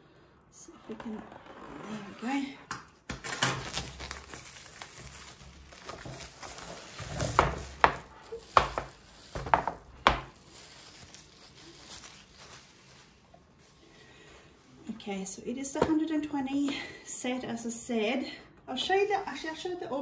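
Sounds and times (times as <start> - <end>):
plastic wrap crinkling: 2.9 - 14.8.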